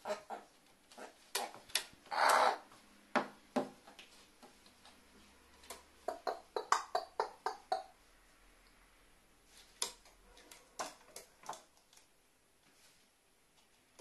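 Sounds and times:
crow calling: 0:02.1 - 0:02.6.

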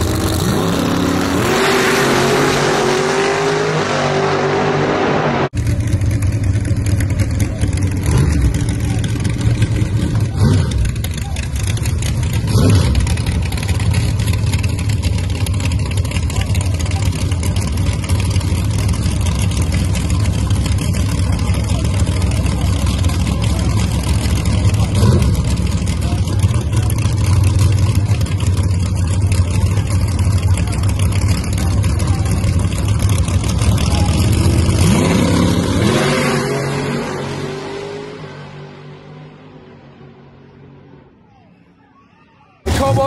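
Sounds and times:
drag racing car engine revving: 0:00.0 - 0:41.1.

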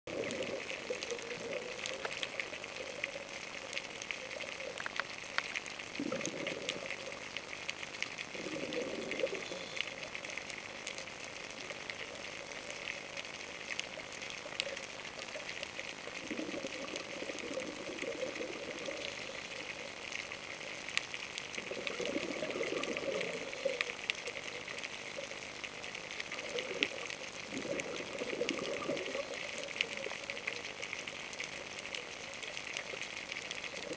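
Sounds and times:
crackle of faint underwater clicks: 0:00.1 - 0:33.9
diver's exhaled bubbles rushing: 0:06.0 - 0:06.9, 0:21.6 - 0:23.7, 0:27.5 - 0:29.3.

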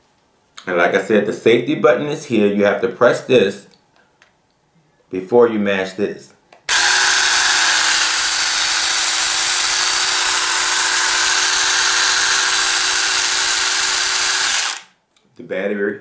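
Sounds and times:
electric mini chainsaw whirring: 0:06.7 - 0:14.9.

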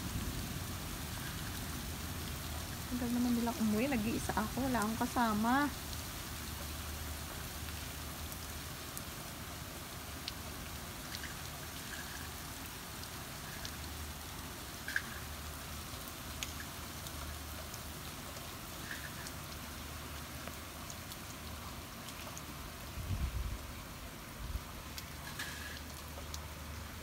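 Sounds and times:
steady rain falling: 0:00.0 - 0:27.0.

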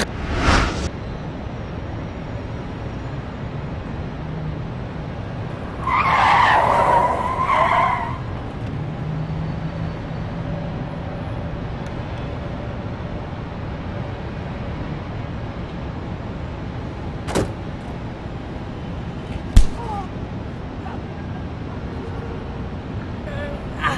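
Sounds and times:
low vehicle rumble: 0:00.0 - 0:01.0
car tyres squealing: 0:05.6 - 0:08.6.

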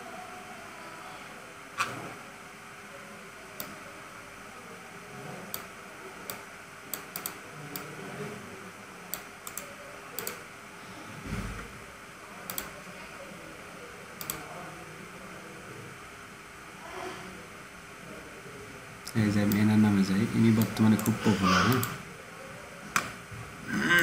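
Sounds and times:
computer mouse clicking: 0:06.3 - 0:07.9, 0:09.1 - 0:10.4, 0:12.5 - 0:12.8, 0:14.2 - 0:14.5, 0:20.5 - 0:21.2.

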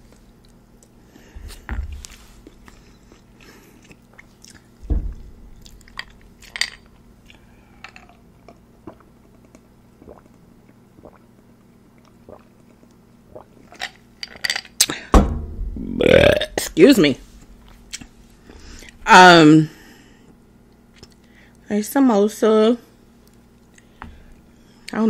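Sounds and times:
person chewing food: 0:00.1 - 0:04.8, 0:05.6 - 0:11.2, 0:11.9 - 0:14.4
sips and swallows: 0:01.5 - 0:04.8, 0:07.2 - 0:15.0
low thump: 0:04.8 - 0:05.9, 0:15.2 - 0:16.0.

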